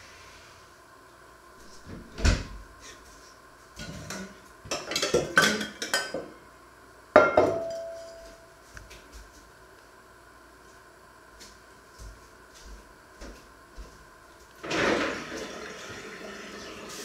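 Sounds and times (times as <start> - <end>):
kitchenware clattering on wood: 3.8 - 6.3
metal pot clanking and ringing: 7.2 - 8.2.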